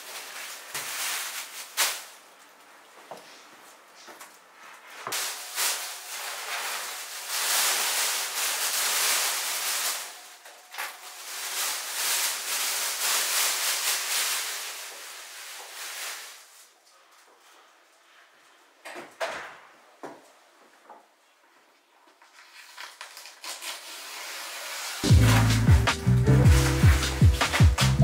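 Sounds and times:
plastic film crinkling and rustling: 0.0 - 2.9, 4.4 - 17.1, 22.1 - 25.8, 26.4 - 28.0.

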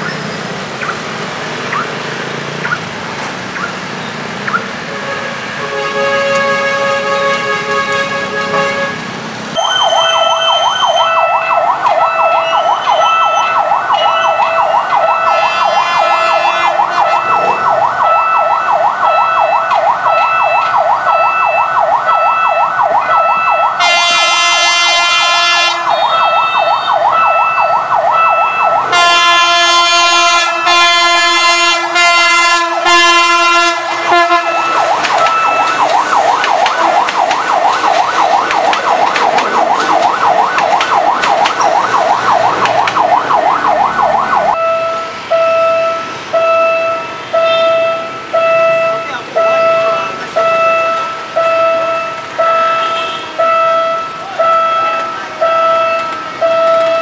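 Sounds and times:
warbling warning siren: 0.8 - 2.8, 9.6 - 57.0
train horn blasts: 4.9 - 9.0, 15.3 - 17.4, 23.8 - 26.1, 28.9 - 34.8
short beep: 9.6 - 11.1, 17.0 - 17.7.

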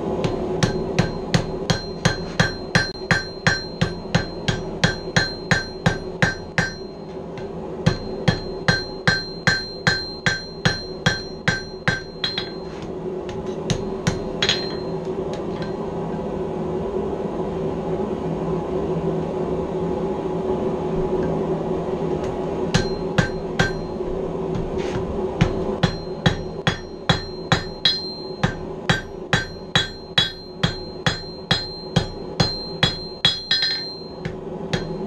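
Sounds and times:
hammer striking steel on anvil: 0.0 - 16.0, 22.7 - 35.0
steady hum: 0.0 - 35.0.

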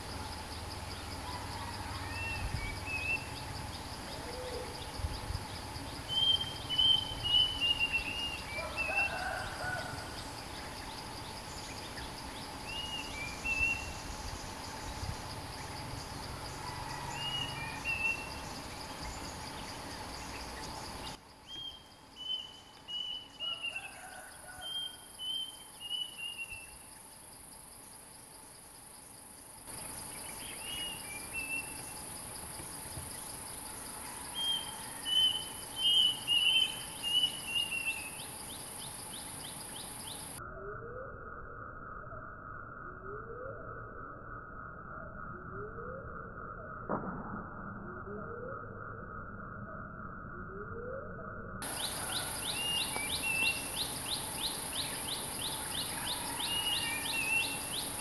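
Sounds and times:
high drone of insects: 0.0 - 51.0, 51.6 - 58.0
bulbuls whistling calls: 6.1 - 10.0, 30.2 - 31.9, 34.3 - 38.3, 51.6 - 58.0.

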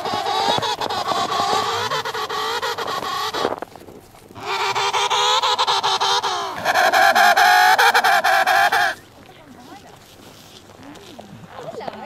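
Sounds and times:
penguin calling: 0.0 - 9.1.

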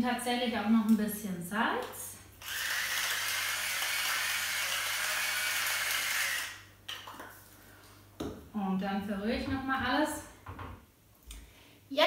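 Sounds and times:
electric salt mill grinding: 2.4 - 6.6.

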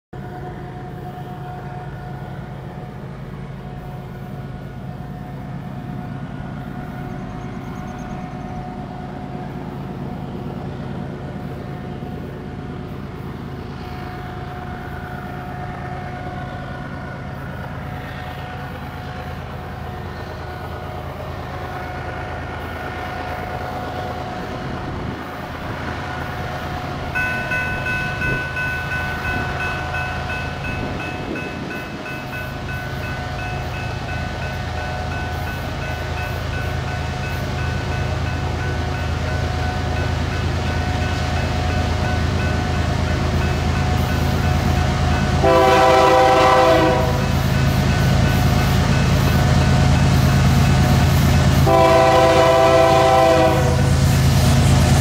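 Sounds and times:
distant diesel locomotives droning: 0.2 - 55.0
locomotive air horn: 45.4 - 47.3, 51.6 - 53.9.

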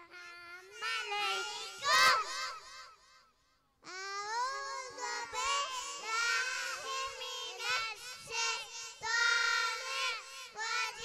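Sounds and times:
children chanting in unison: 0.0 - 3.2, 3.8 - 11.0.

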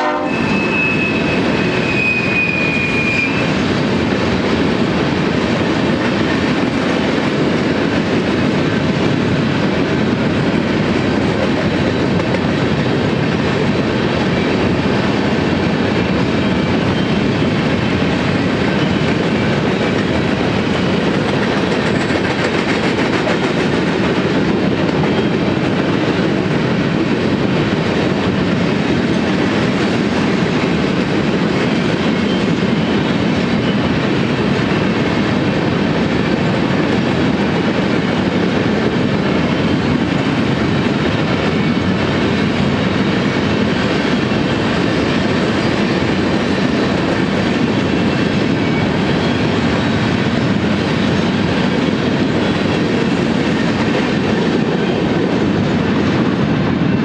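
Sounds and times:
train wheels rumbling on rails: 0.0 - 57.0
high wheel squeal: 0.3 - 3.6.

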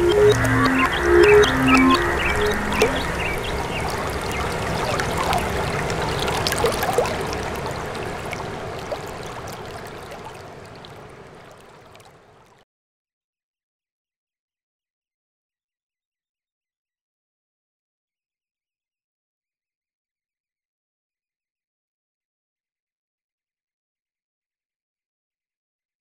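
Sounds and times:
water gurgling and lapping: 0.0 - 12.6.

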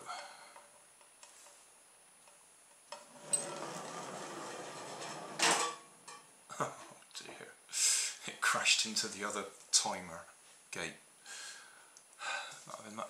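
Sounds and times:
clattering crash: 3.4 - 6.2.

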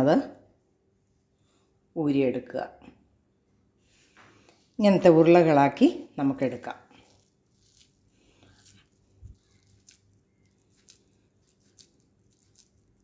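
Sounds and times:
hand squishing sticky minced meat: 6.9 - 13.0.

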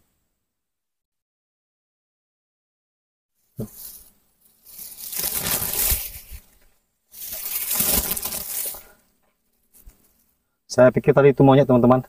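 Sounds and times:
leaves and branches rustling: 3.6 - 10.4.

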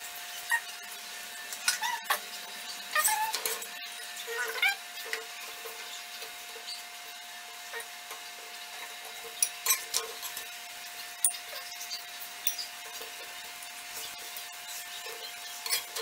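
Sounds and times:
spoon clinking against bowl: 12.4 - 12.7.

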